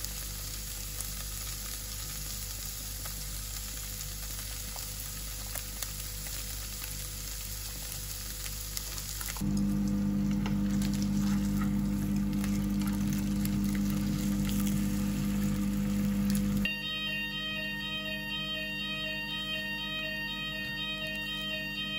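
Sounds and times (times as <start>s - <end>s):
fish sizzling in oil: 0.0s - 16.7s
steady low hum: 9.4s - 21.9s.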